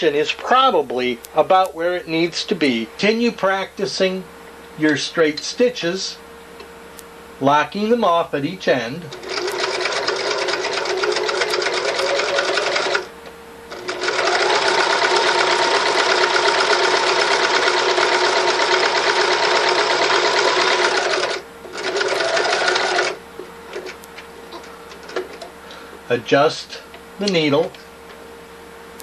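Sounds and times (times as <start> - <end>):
electric sewing machine stitching: 9.1 - 13.1, 13.7 - 23.2.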